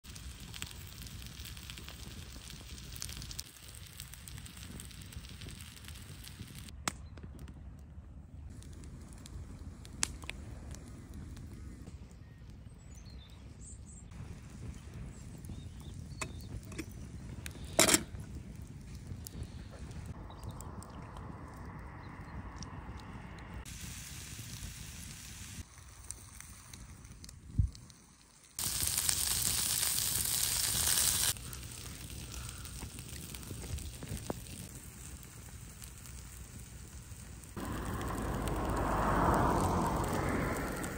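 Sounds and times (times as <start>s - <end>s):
wood fire crackling: 0.0s - 40.9s
meat sizzling in a pan: 0.1s - 6.7s, 28.0s - 40.9s
sharp snap of fire: 8.5s - 12.0s, 26.0s - 40.9s
low rumble: 18.5s - 23.7s, 37.5s - 40.9s.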